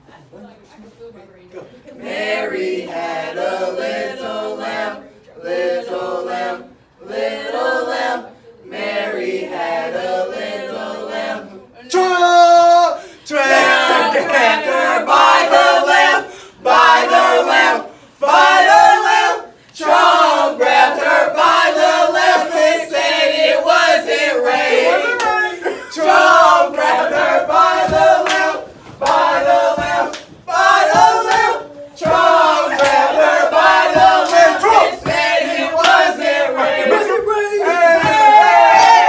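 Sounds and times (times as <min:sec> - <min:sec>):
group chanting and singing: 0:01.9 - 0:39.0
hand claps: 0:27.8 - 0:33.2, 0:33.9 - 0:36.1.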